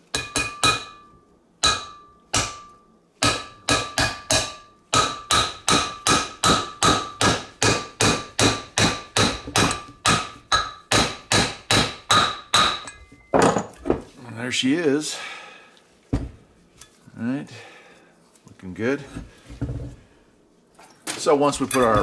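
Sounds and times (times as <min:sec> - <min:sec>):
hammer striking metal: 0:00.1 - 0:13.6.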